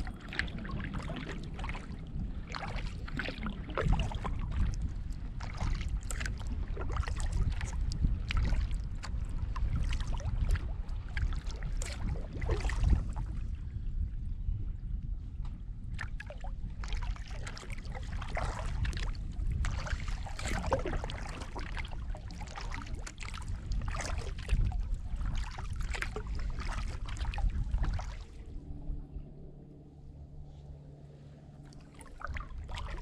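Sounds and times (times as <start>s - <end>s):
paddle splashing in water: 0.0s - 13.4s, 15.9s - 28.5s, 31.5s - 33.0s
low rumble: 0.0s - 33.0s.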